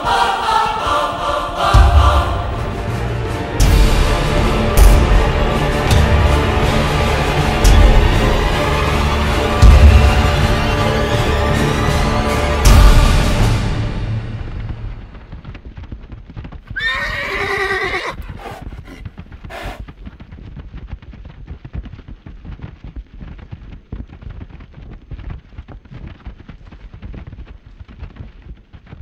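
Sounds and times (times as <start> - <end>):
hoofbeats clip-clop: 15.0 - 29.0
horse whinnying: 16.7 - 19.8.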